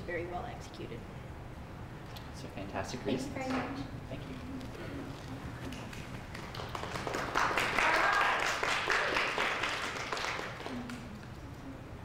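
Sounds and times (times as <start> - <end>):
audience applause: 5.8 - 11.1.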